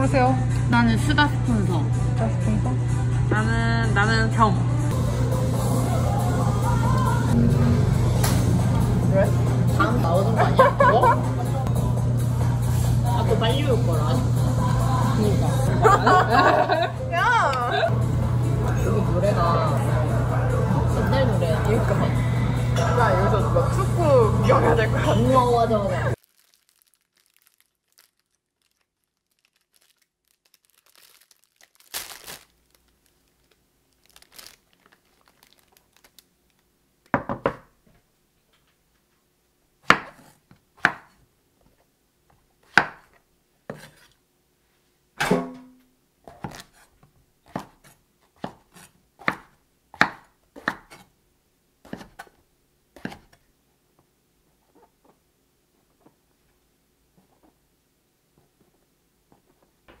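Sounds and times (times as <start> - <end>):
sharp kitchen knocks: 37.2 - 37.7, 45.2 - 45.8.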